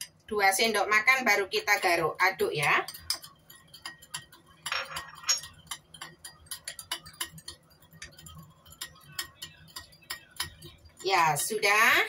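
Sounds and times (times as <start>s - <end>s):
spoon clinking against ceramic bowl: 2.6s - 11.6s.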